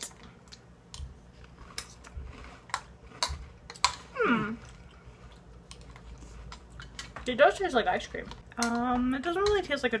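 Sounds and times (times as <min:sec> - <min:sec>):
cereal crunching while chewed: 0:00.0 - 0:07.4
person humming mmm: 0:04.0 - 0:04.7
spoons clicking on plastic bowls: 0:08.3 - 0:09.8.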